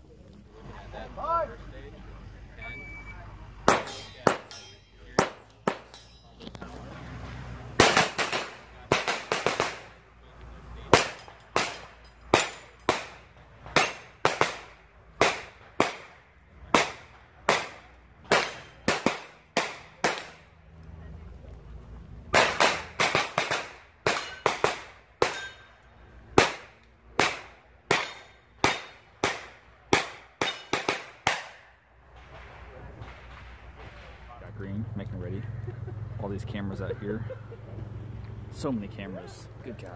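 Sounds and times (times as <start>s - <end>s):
carbine gunshots: 7.8s - 10.1s, 10.9s - 20.4s, 22.3s - 25.6s, 26.3s - 34.2s.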